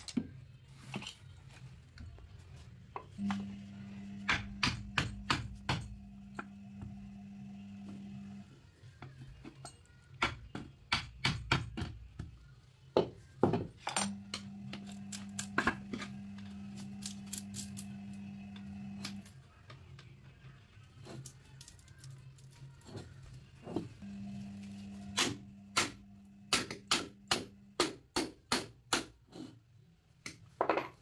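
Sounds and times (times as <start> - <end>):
hammer and chisel on steel: 4.2 - 6.6, 25.2 - 29.5.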